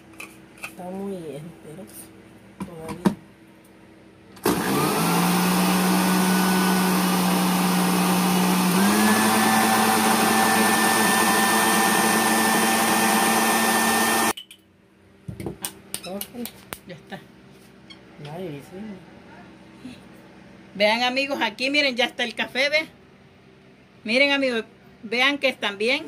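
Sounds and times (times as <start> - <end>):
blender grinding coffee beans: 4.4 - 14.4.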